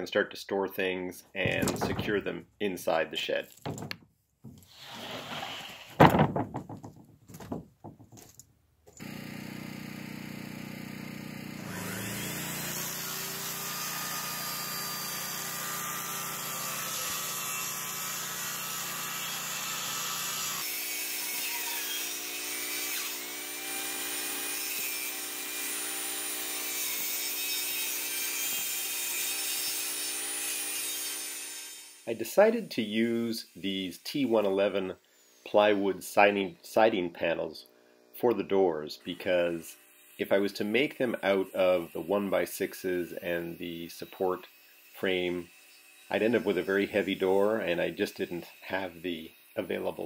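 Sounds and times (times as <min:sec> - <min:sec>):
knocks of plywood being handled: 0:01.4 - 0:02.3, 0:03.5 - 0:04.7, 0:05.8 - 0:08.4
circular saw cutting plywood: 0:04.5 - 0:06.0, 0:11.5 - 0:37.5, 0:38.2 - 0:50.0.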